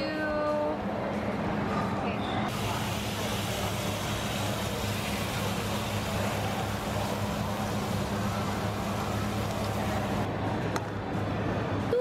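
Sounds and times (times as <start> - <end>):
noodles sizzling on iron plate: 2.5 - 10.3.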